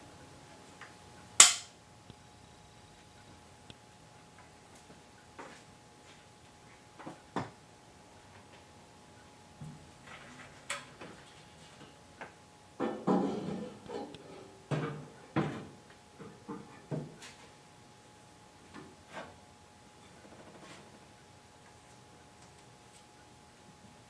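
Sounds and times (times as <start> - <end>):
metal clunks and scraping: 12.8 - 15.7.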